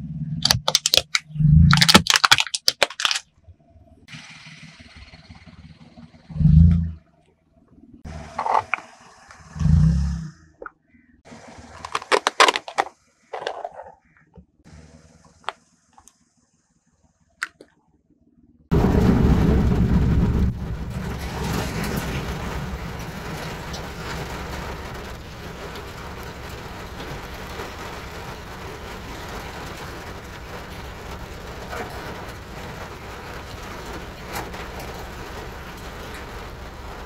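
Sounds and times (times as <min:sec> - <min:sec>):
sharp cracks and clicks: 0:00.4 - 0:03.3
rain drumming on car: 0:18.7 - 0:37.0.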